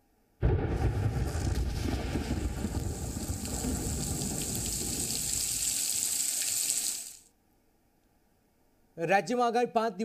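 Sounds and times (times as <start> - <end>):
heavy rain pouring: 1.2 - 7.2.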